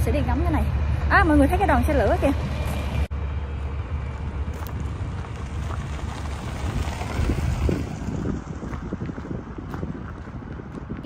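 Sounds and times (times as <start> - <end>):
wind buffeting microphone: 3.6 - 11.0.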